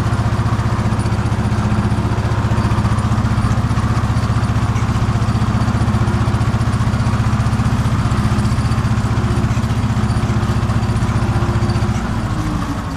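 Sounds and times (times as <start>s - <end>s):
tractor engine running: 0.0s - 12.9s.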